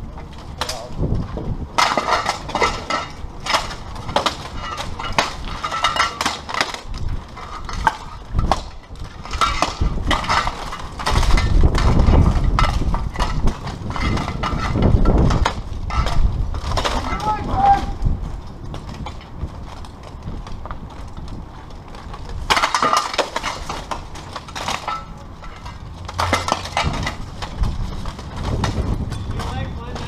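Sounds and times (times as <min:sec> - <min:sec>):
armour clanking and weapon hits: 0:01.8 - 0:17.8, 0:22.5 - 0:30.0.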